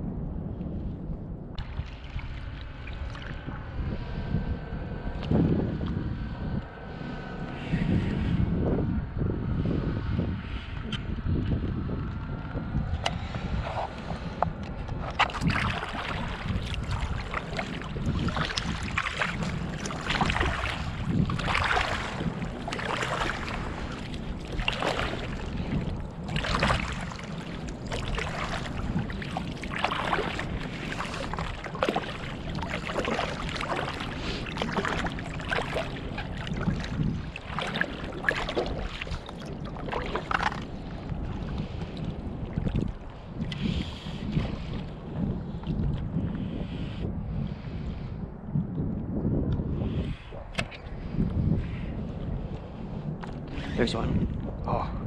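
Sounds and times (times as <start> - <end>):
wind rumble on microphone: 0.0 - 55.0
water splashing against surfboard: 15.0 - 44.8.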